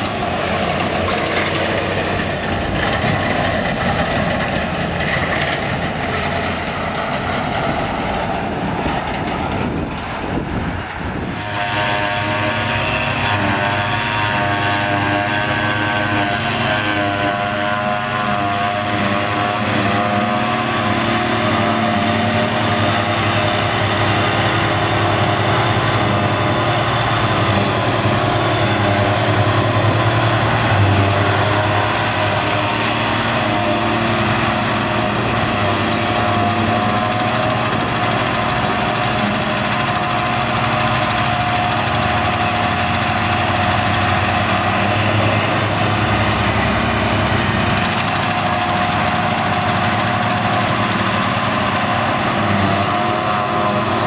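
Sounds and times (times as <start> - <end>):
forage harvester engine and chopper: 0.0 - 54.0
tractor engine: 0.0 - 54.0
tractor passing: 0.0 - 54.0.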